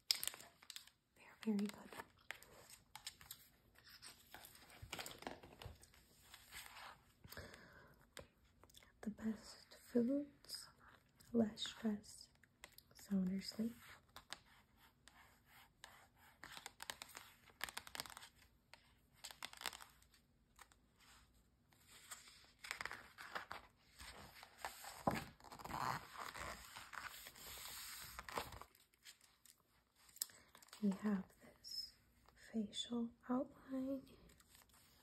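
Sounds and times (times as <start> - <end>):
paper rustling and crinkling: 0.0 - 7.2, 16.3 - 31.0.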